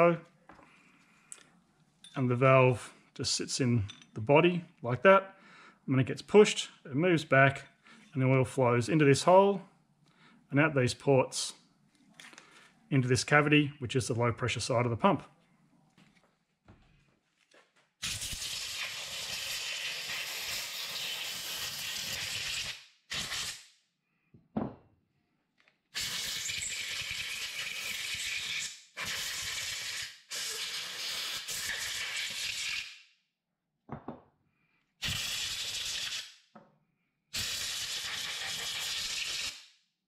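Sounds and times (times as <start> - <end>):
compressed air blasts: 35.0 - 36.3.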